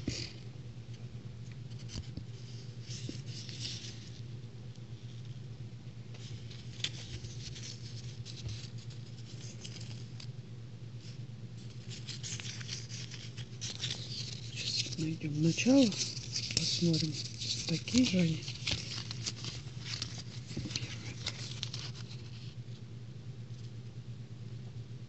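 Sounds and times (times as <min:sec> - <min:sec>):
steady low hum: 0:00.0 - 0:25.0
paper sticker strip crinkling: 0:01.7 - 0:04.2, 0:06.2 - 0:10.3, 0:11.0 - 0:22.6.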